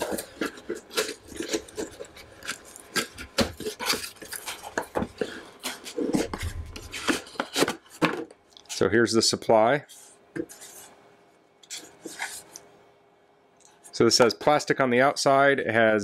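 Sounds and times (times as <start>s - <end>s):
cardboard boxes scraping and rustling: 0.0s - 8.3s.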